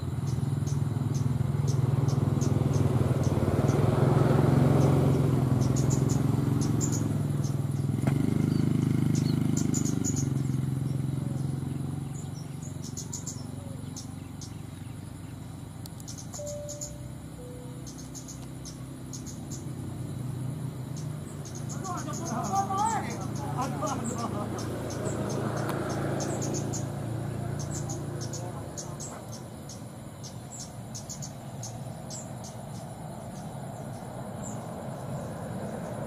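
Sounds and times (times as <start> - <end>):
crickets chirping: 0.0 - 36.0
low engine hum: 0.0 - 36.0.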